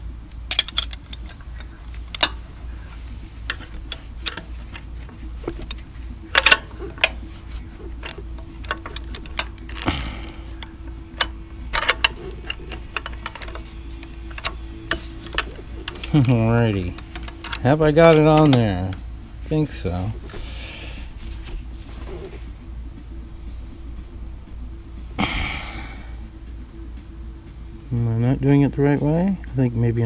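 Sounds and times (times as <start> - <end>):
steady low hum: 0.0 - 30.0
wrench clicking on metal bolt: 0.5 - 2.4, 5.6 - 7.2, 10.6 - 16.3, 16.9 - 18.7.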